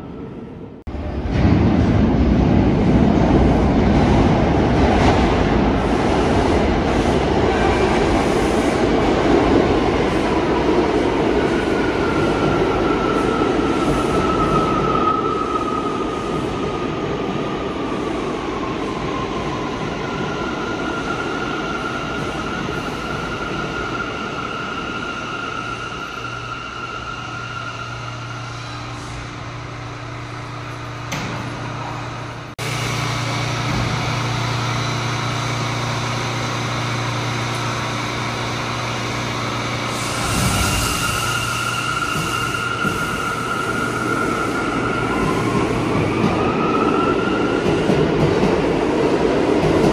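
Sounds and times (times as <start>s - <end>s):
subway train rumbling on rails: 0.0s - 49.9s.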